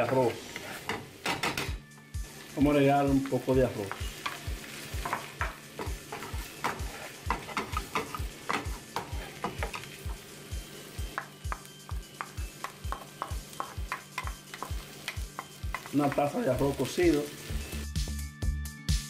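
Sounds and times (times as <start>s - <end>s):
wooden spoon scraping a pan: 0.0s - 1.4s, 2.2s - 10.3s
food sizzling in a frying pan: 0.0s - 18.2s.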